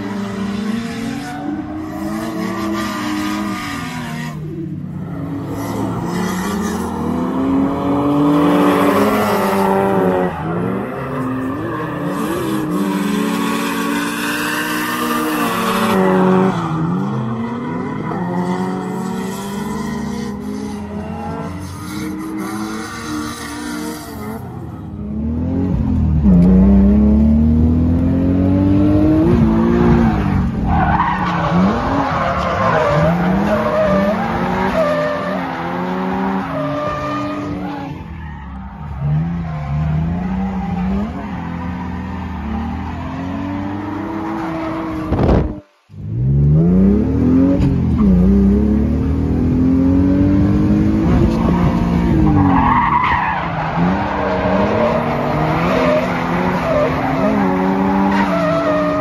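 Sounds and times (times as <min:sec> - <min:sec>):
car engine revving: 0:00.0 - 0:59.0.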